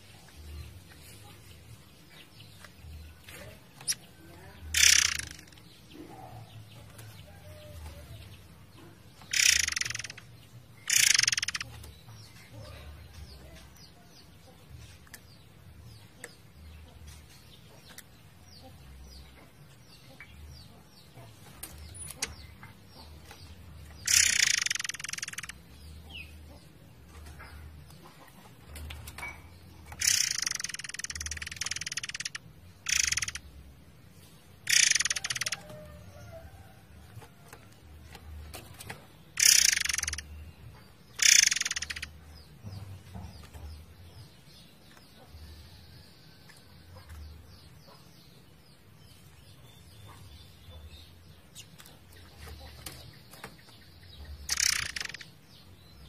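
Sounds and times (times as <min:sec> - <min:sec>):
songbird singing rapid bursts: 0:04.7 - 0:05.6, 0:09.2 - 0:11.7, 0:24.0 - 0:25.6, 0:29.9 - 0:33.5, 0:34.6 - 0:35.7, 0:39.3 - 0:40.5, 0:41.1 - 0:42.5, 0:53.0 - 0:56.0.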